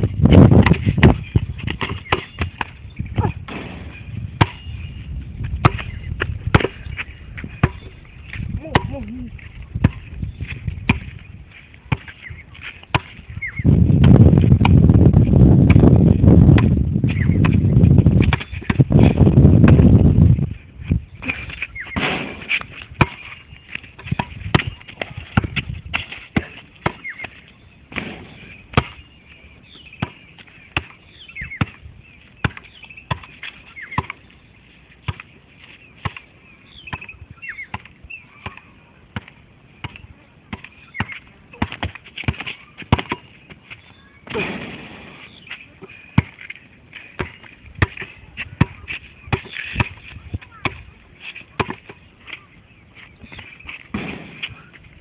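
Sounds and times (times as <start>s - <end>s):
basketball bouncing on hard court: 0.3s - 3.8s, 4.4s - 4.7s, 5.5s - 6.8s, 7.4s - 7.9s, 8.7s - 9.0s, 10.9s - 11.2s, 15.6s - 20.1s, 24.0s - 27.0s, 37.7s - 43.3s.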